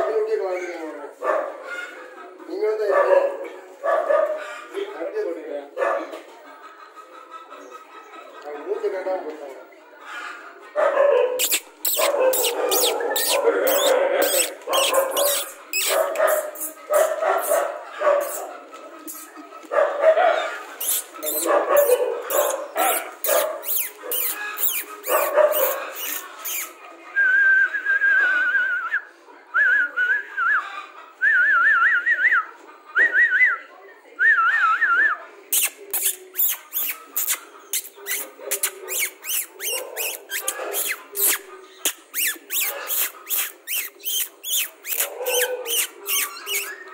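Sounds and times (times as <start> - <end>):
puppies whining and yelping: 11.4 - 18.6, 20.5 - 26.7, 38.1 - 41.4, 42.3 - 46.9.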